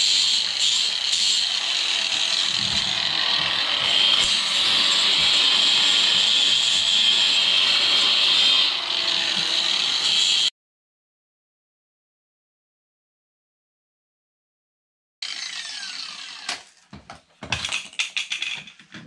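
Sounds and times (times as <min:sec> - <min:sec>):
angle grinder grinding steel: 0:00.0 - 0:10.5, 0:15.2 - 0:16.8.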